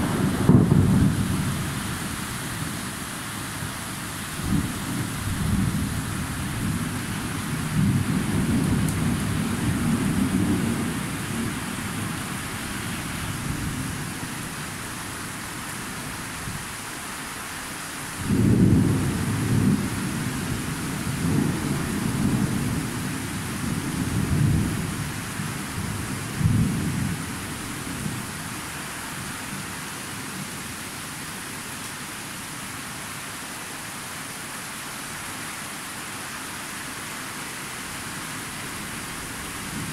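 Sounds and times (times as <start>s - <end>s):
thunder rumbling: 0.0s - 2.8s, 4.4s - 12.1s
rain hissing: 0.0s - 16.2s.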